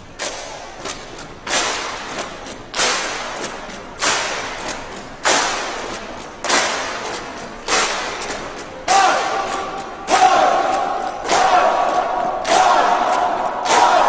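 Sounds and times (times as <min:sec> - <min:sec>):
sharp percussive hits: 0:00.1 - 0:14.0.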